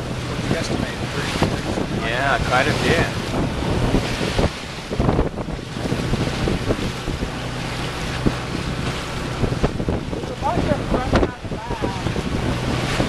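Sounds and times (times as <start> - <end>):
boat engine humming: 0.0 - 13.0
water rushing past hull: 0.0 - 13.0
wind buffeting microphone: 0.0 - 13.0.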